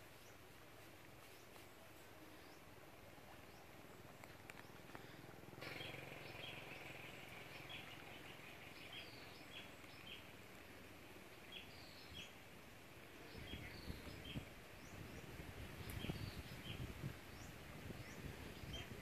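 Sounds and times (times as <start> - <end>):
small birds chirping: 0.0 - 19.0
steady high hiss: 0.0 - 19.0.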